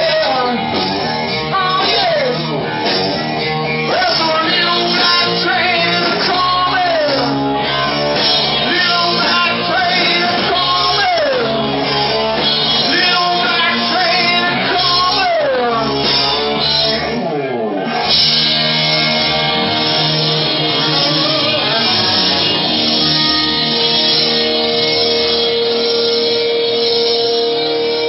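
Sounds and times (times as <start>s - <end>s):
person singing: 0.0s - 3.1s, 3.8s - 16.4s, 18.0s - 28.0s
live rock band playing: 0.0s - 28.0s
falling pitch slide: 16.6s - 28.0s.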